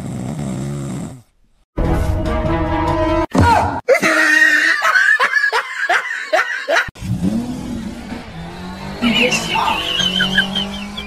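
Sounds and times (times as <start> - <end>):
laughter: 3.9 - 7.0
car engine: 7.0 - 11.0.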